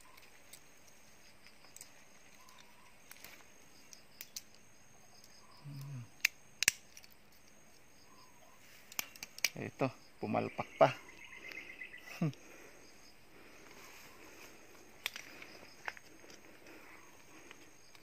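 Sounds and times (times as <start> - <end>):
insect chirps: 0.0 - 18.0
sharp clicks: 1.6 - 4.6, 5.2 - 7.6, 8.9 - 9.6.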